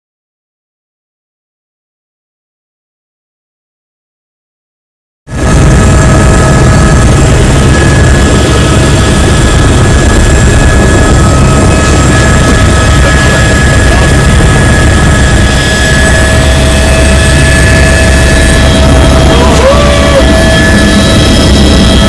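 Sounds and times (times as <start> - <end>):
helicopter engine and rotor: 5.3 - 22.0.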